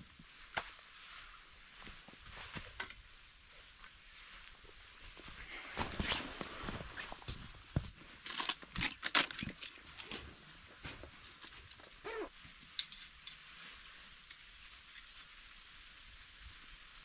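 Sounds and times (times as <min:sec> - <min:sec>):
crunching footsteps in snow: 0:03.6 - 0:08.7
dog whining: 0:12.0 - 0:12.3.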